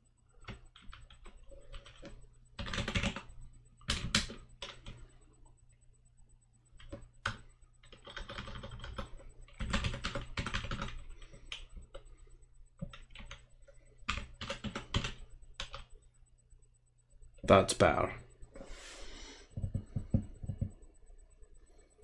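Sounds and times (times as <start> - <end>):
computer keyboard typing: 0.4 - 5.2, 6.8 - 16.0.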